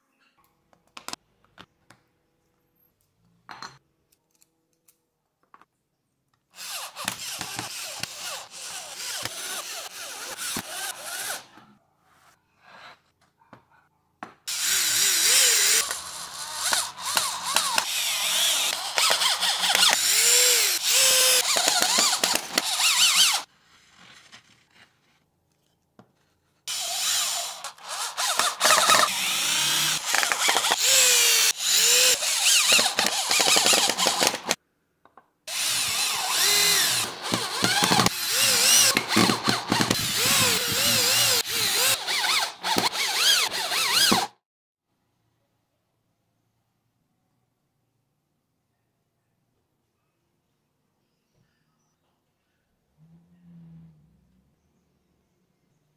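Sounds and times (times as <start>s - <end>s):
electric drill driving screws: 6.6s - 11.5s, 14.5s - 23.5s, 26.7s - 34.6s, 35.5s - 44.4s.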